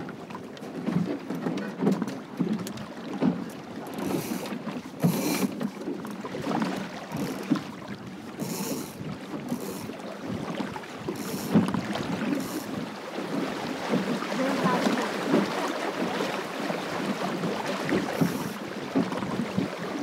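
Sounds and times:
water rushing along a hull: 0:00.0 - 0:20.0.

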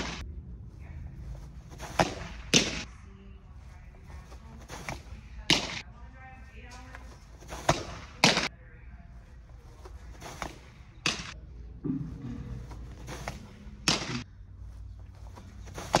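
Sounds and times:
softballs smacking into glove: 0:01.7 - 0:02.9, 0:06.9 - 0:08.5, 0:10.1 - 0:11.4, 0:12.6 - 0:14.2, 0:15.3 - 0:16.0.

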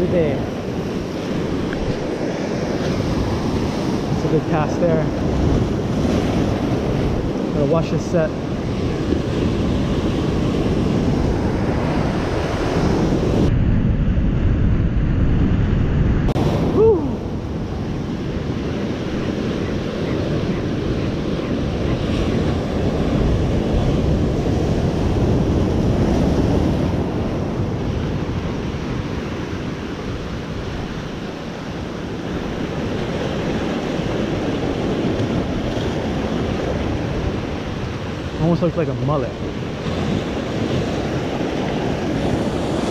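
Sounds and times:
surf crashing on rocks: 0:00.0 - 0:13.5, 0:14.4 - 0:42.9
wind buffeting microphone: 0:00.0 - 0:42.9.

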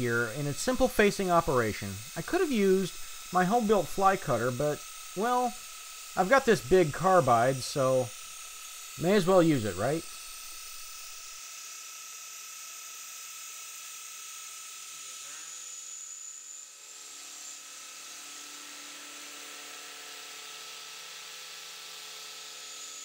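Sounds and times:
milling machine spindle whine: 0:00.0 - 0:11.7.

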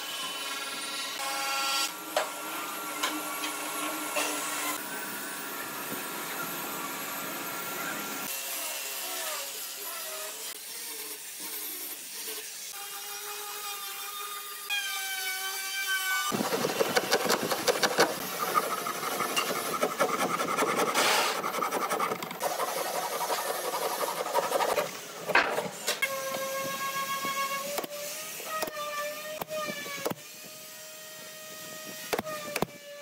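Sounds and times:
hand file rasping on wood: 0:16.3 - 0:25.0
angle grinder whining against wood: 0:16.3 - 0:30.2.

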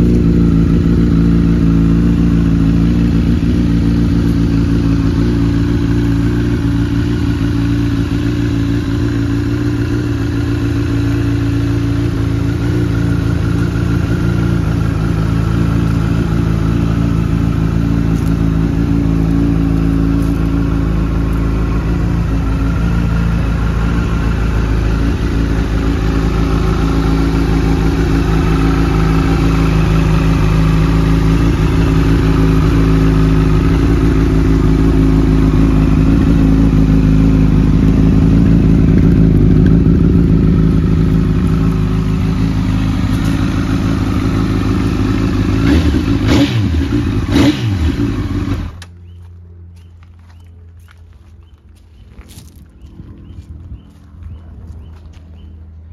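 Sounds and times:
motorcycle engine idling: 0:00.0 - 0:55.9.

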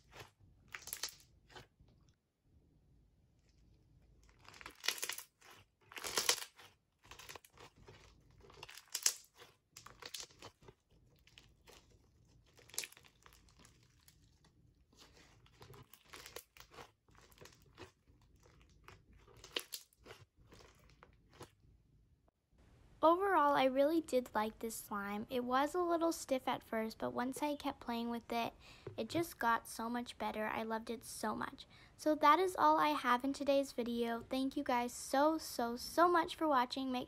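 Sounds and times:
foam slime crunching: 0:04.1 - 0:21.6.

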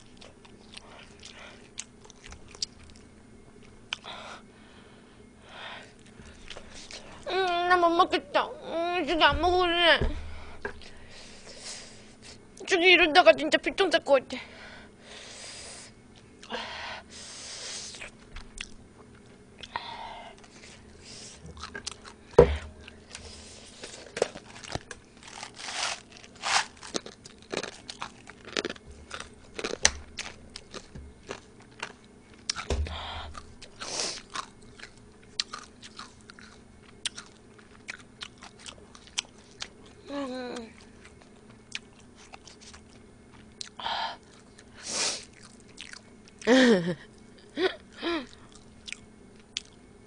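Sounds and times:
person chewing food: 0:00.0 - 0:04.1, 0:05.9 - 0:07.3, 0:17.9 - 0:40.0, 0:40.6 - 0:46.5, 0:48.3 - 0:49.8
breathy hisses: 0:14.5 - 0:18.0.

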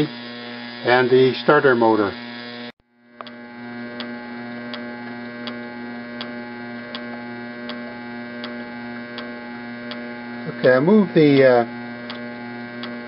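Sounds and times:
electric motor hum: 0:00.0 - 0:13.0
spark plug snapping ticks: 0:02.4 - 0:05.6, 0:06.2 - 0:10.1, 0:11.3 - 0:13.0.

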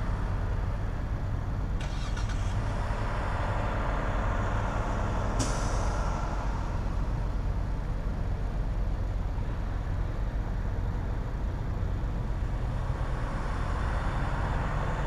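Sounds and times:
truck engines idling: 0:00.0 - 0:15.0
air brakes hissing: 0:05.2 - 0:06.7.

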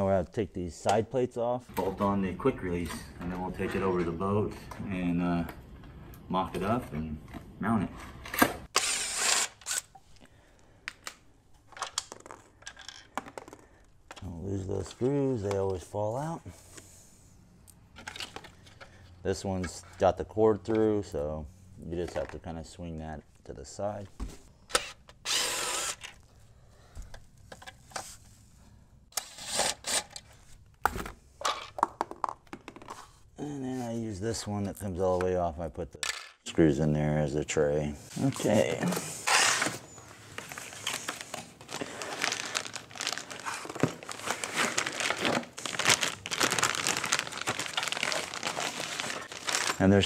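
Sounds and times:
cardboard packaging scraping: 0:38.2 - 0:50.0.

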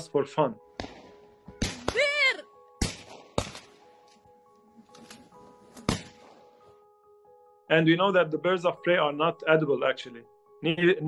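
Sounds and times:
soft background music: 0:00.0 - 0:11.0
gunshots: 0:00.8 - 0:02.1, 0:02.8 - 0:03.8, 0:05.9 - 0:06.3.

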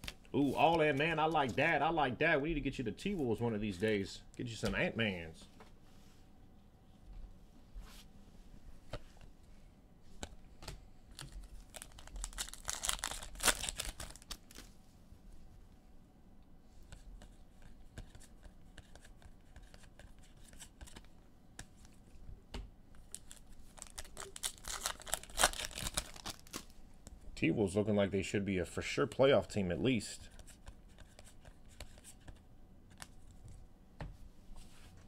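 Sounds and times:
wrappers tearing and crinkling: 0:11.1 - 0:14.7, 0:23.1 - 0:26.7.

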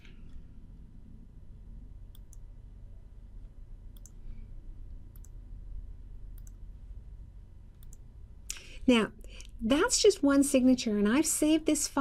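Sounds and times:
low steady hum: 0:00.0 - 0:12.0
computer mouse clicking: 0:02.1 - 0:02.5, 0:03.9 - 0:04.3, 0:05.1 - 0:05.4, 0:06.2 - 0:06.6, 0:07.7 - 0:08.7.

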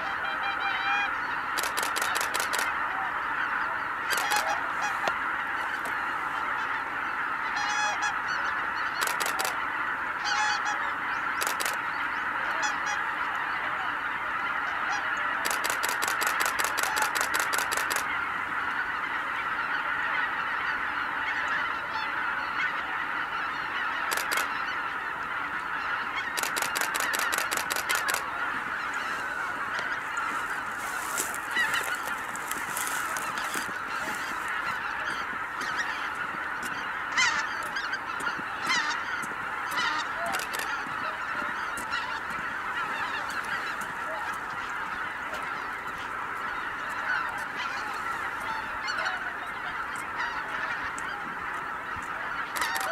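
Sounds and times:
geese honking: 0:00.0 - 0:52.9
rapid train of clicks: 0:01.6 - 0:02.7, 0:09.0 - 0:09.6, 0:11.4 - 0:11.8, 0:15.4 - 0:18.1, 0:24.1 - 0:24.5, 0:26.4 - 0:28.3, 0:39.7 - 0:40.8.

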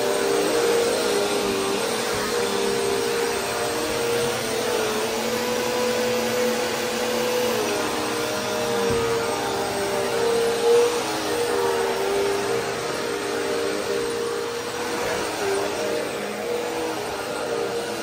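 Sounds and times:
vacuum cleaner running on carpet: 0:00.0 - 0:18.0.

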